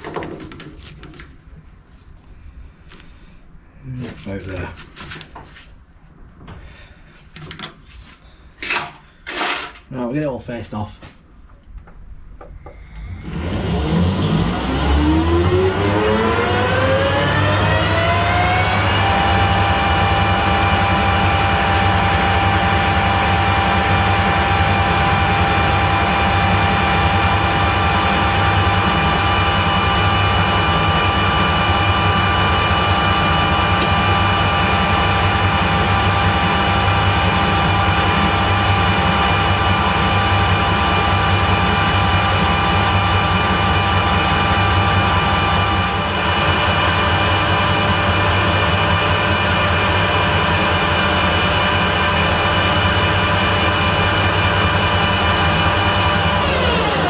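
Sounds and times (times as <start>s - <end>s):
lathe whine: 12.4s - 57.0s.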